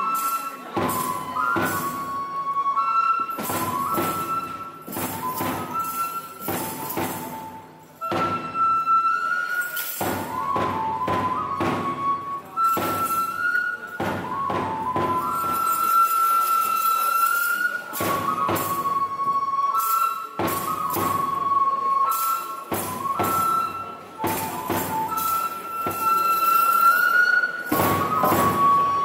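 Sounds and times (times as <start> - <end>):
transverse flute long notes: 0.0 - 29.0
drum strikes: 3.4 - 8.6, 10.0 - 13.4, 14.0 - 15.8, 22.7 - 26.4, 27.7 - 29.0.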